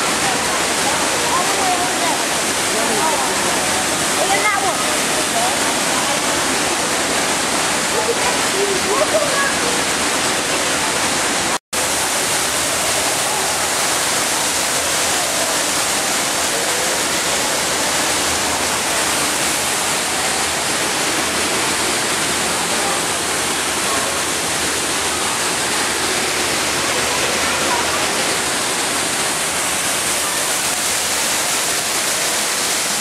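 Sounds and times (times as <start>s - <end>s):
waterfall rushing into pool: 0.0s - 33.0s.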